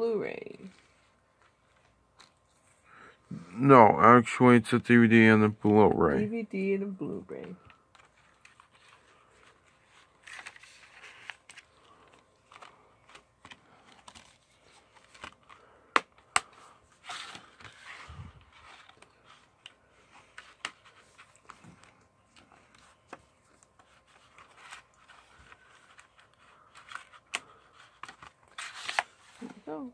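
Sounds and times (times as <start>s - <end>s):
plastic case rustling and scraping: 7.4s - 15.6s, 16.9s - 29.9s.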